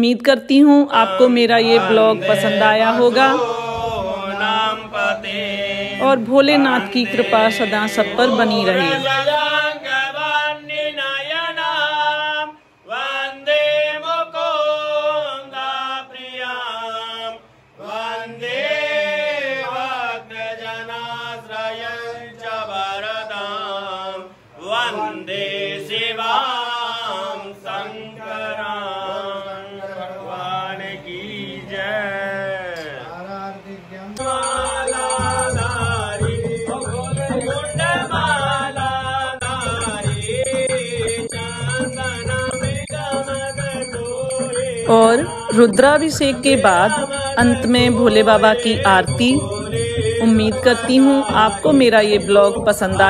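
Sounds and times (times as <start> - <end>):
person chanting: 0.9 - 10.3, 44.8 - 53.0.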